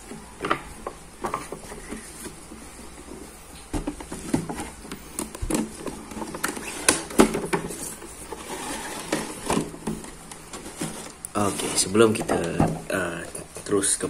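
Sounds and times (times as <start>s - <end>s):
cardboard box crinkling and scraping: 4.0s - 13.6s.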